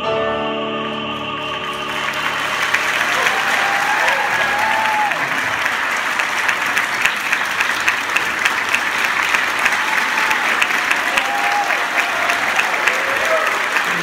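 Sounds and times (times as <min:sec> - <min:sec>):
audience clapping: 0:01.2 - 0:14.0
person whooping: 0:03.1 - 0:05.4, 0:11.0 - 0:14.0.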